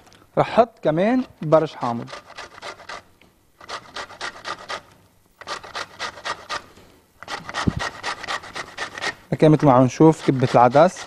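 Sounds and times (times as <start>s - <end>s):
lemon rasping on metal grater: 1.4s - 3.0s, 3.6s - 6.6s, 7.2s - 11.0s.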